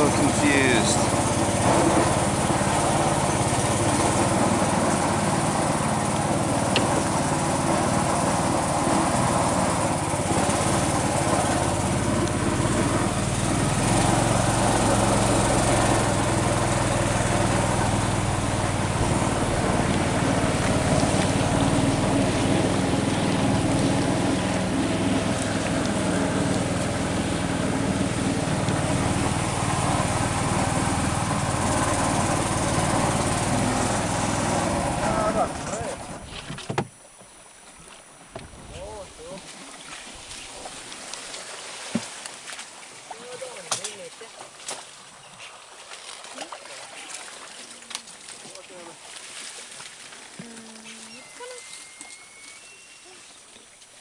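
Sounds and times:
small boat engine running: 0.0 - 54.0.

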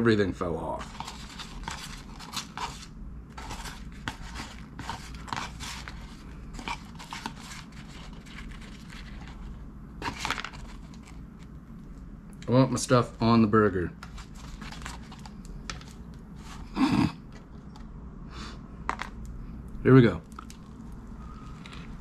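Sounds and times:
steady low hum: 0.0 - 22.0
rustling and scraping of cardboard box: 0.8 - 11.2, 14.0 - 16.7.

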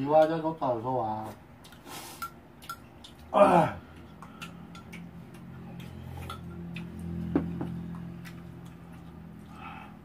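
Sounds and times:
steady low hum: 0.0 - 10.0
chewing mouth clicks and smacks: 1.6 - 3.3, 3.9 - 9.6.

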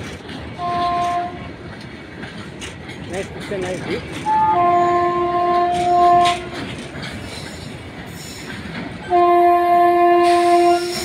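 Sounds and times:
passing freight train rumble: 0.0 - 11.0
train horn blast: 0.6 - 1.5, 4.2 - 6.7, 9.1 - 11.0.

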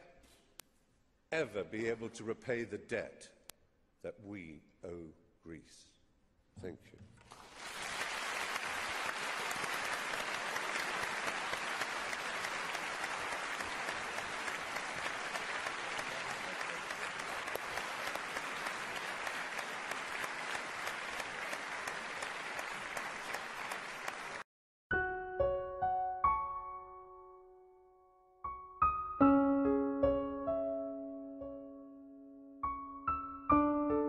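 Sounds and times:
audience applauding: 7.3 - 24.5.

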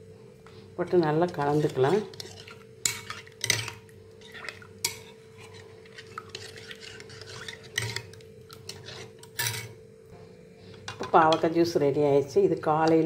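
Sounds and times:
faint steady hum: 0.0 - 13.0
metal spoon clinking in bowl: 9.3 - 9.7.

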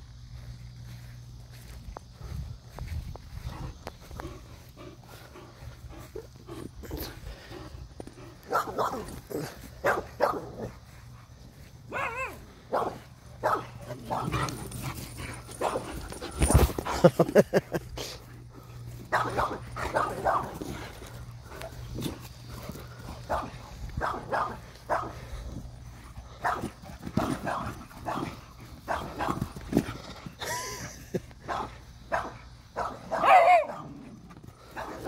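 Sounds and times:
dog barking: 8.5 - 9.1, 9.8 - 10.7, 11.9 - 14.3, 19.1 - 20.6, 23.3 - 25.1, 31.5 - 34.0.

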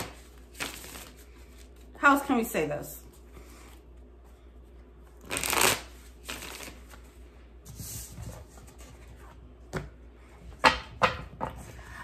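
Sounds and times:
cards being shuffled by hand: 0.0 - 1.9, 5.1 - 7.2.

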